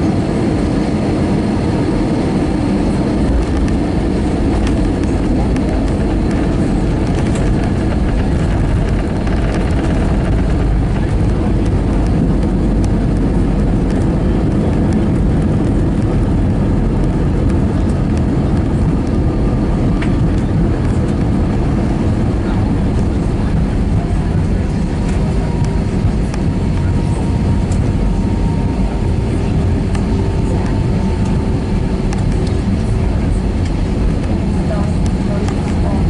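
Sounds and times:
aircraft engines rumbling: 0.0s - 36.0s
wheels rolling on runway: 2.9s - 31.5s.

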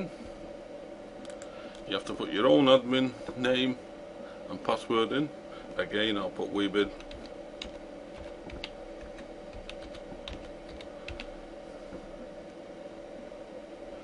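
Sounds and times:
steady hum: 0.0s - 14.0s
computer keyboard key clicks: 7.0s - 11.3s.

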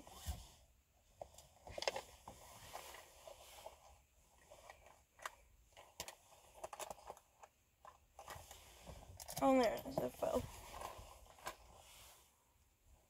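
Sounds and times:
faint rustling: 0.0s - 13.0s
small items clicking and tapping: 4.6s - 8.4s, 9.2s - 10.1s.

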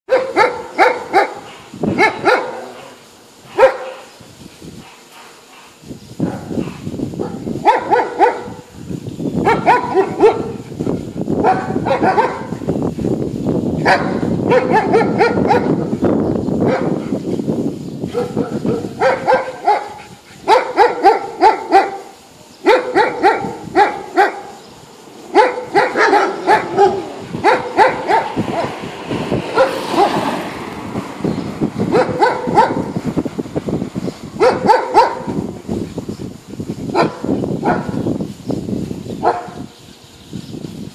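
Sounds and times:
dogs barking: 0.1s - 4.2s, 4.8s - 8.7s, 9.4s - 10.7s, 11.4s - 12.7s, 13.8s - 15.9s, 16.6s - 17.0s, 18.1s - 30.7s, 31.8s - 33.0s, 34.4s - 35.5s, 36.9s - 38.1s, 39.2s - 39.7s.

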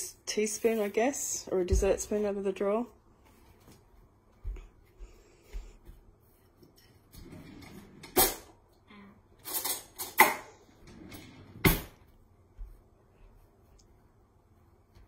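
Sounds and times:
drawer opening and shutting: 7.1s - 8.5s, 9.4s - 12.1s
metal cutlery clattering: 9.4s - 10.3s.

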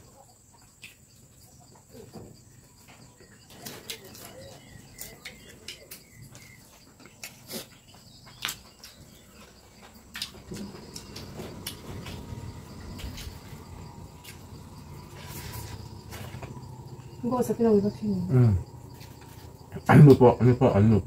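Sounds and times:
insect chirring: 0.0s - 21.0s
hands picking food clicks: 3.7s - 11.8s.

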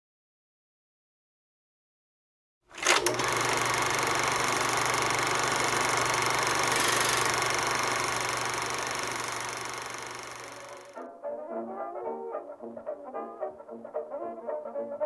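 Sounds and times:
film projector clattering: 2.7s - 11.0s
projector clicks: 2.8s - 11.0s.

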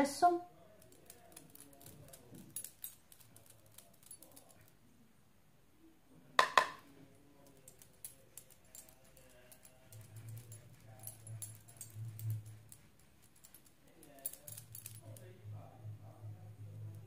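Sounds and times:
brush and cosmetic containers tapping: 6.4s - 6.9s.

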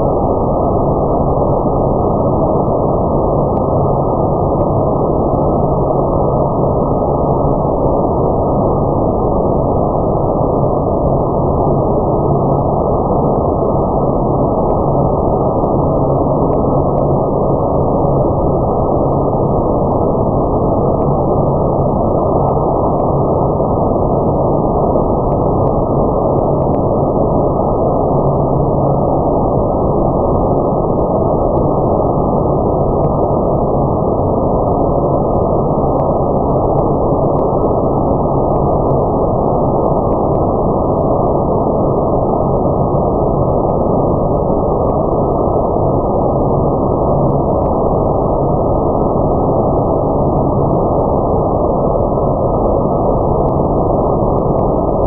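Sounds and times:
faint ticks: 26.4s - 26.9s.

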